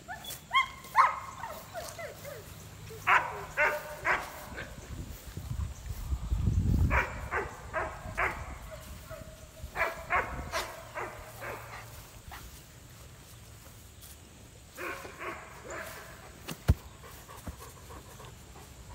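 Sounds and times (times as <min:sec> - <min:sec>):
puppy barking in high yaps: 0:00.1 - 0:04.3.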